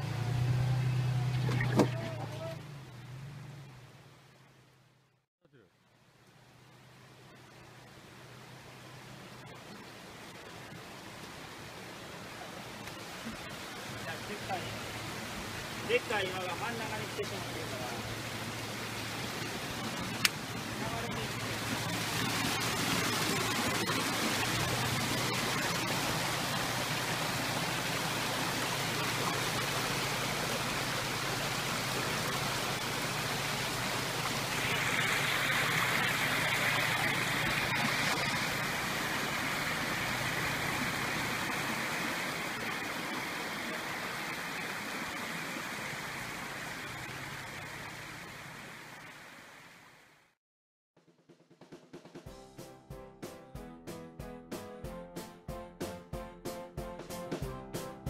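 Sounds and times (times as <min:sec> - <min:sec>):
creek water running over rocks: 0:00.0 - 0:05.0, 0:05.8 - 0:50.4
faint low engine hum: 0:00.0 - 0:10.3.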